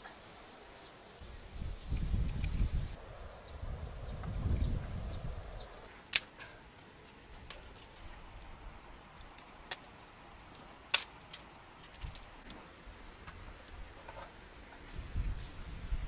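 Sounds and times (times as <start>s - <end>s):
sharp clicks and snaps: 10.5s - 12.4s.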